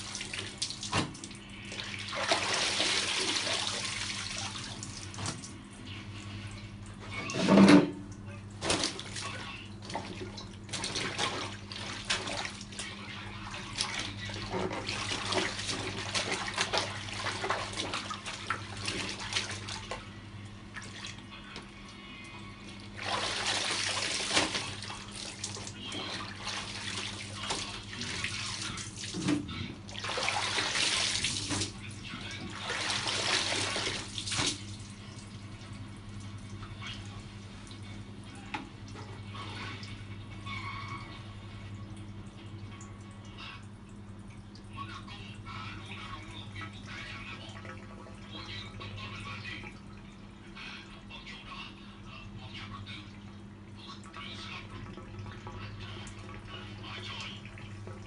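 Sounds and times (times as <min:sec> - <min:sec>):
water splashing in basin: 0:00.0 - 0:05.6, 0:07.2 - 0:21.3, 0:22.8 - 0:35.3
rushes of water: 0:29.9 - 0:31.8.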